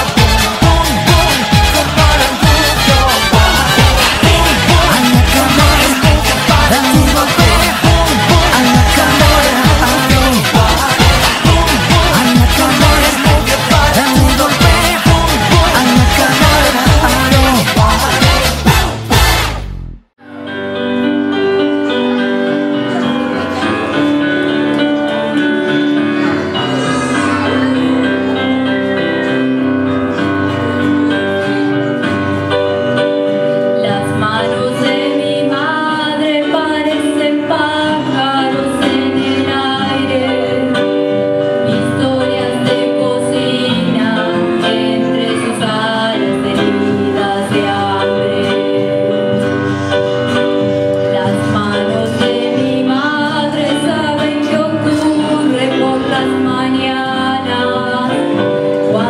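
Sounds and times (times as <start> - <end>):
woman singing into a microphone: 0.0 - 18.7, 33.4 - 59.0
acoustic guitar: 0.0 - 59.0
electronic keyboard: 20.2 - 59.0.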